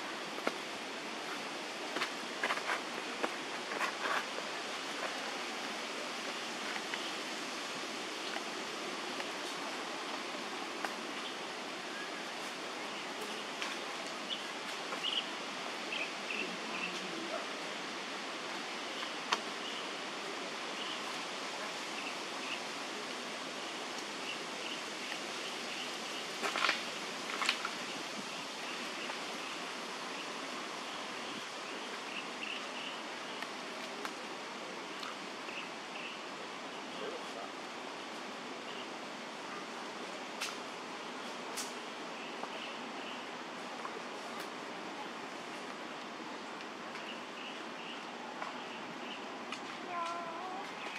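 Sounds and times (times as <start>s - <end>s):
forest hiss: 0.0s - 50.9s.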